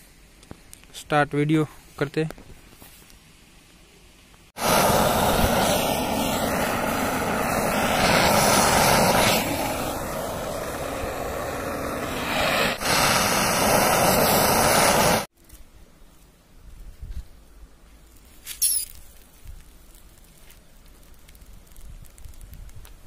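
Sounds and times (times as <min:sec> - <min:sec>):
gas torch hissing: 0:04.5 - 0:15.3.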